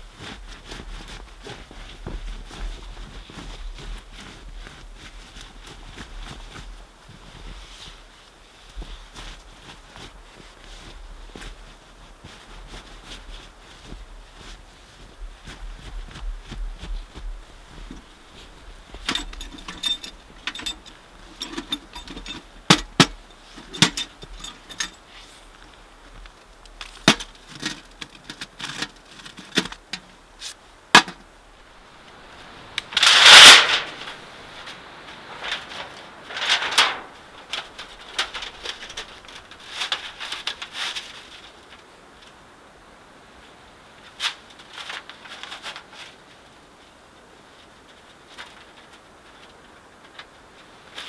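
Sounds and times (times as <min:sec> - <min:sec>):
cloth rustling: 0:00.0 - 0:41.8
metal and plastic clicks and clinks: 0:19.1 - 0:23.1
loud swishing rustle: 0:31.5 - 0:41.5.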